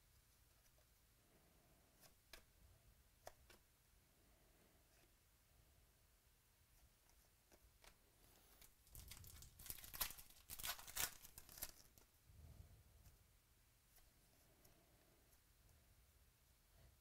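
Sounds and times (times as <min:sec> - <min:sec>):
foil wrapper tearing and crinkling: 0:08.9 - 0:12.0.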